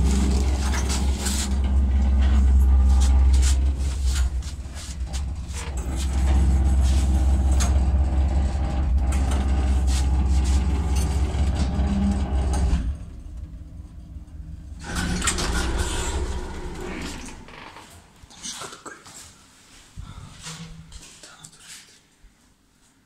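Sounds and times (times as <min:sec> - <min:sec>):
lift humming: 0:00.0 - 0:17.7
lift doors opening: 0:00.0 - 0:17.9.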